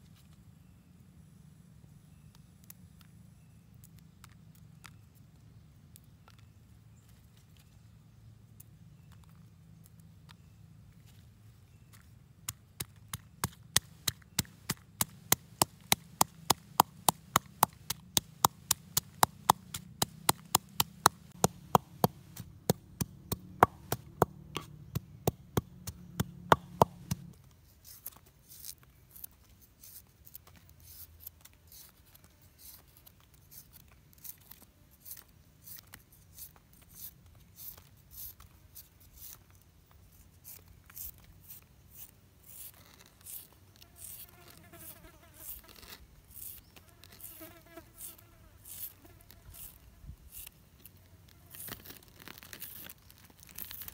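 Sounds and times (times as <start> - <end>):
pestle pounding in wooden mortar: 12.8 - 27.3.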